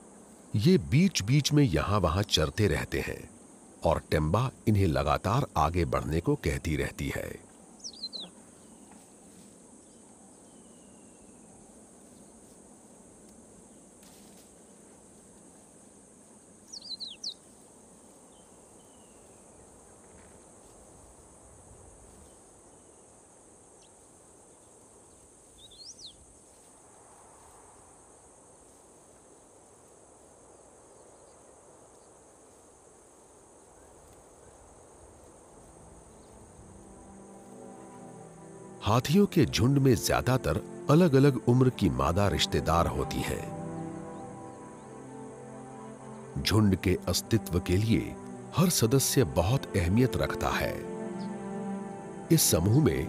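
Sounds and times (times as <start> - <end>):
bird chirps: 7.8 - 9.1, 9.8 - 12.3, 16.7 - 17.5, 18.3 - 19.6, 25.6 - 26.2.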